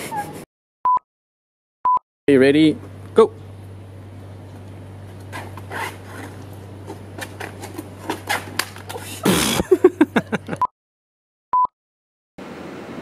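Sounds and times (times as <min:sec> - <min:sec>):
person giggling and laughing: 0:09.2 - 0:10.7.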